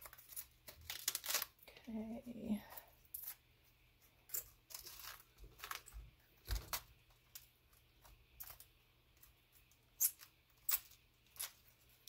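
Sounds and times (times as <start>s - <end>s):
cabbage leaves snapping: 0.0s - 1.5s.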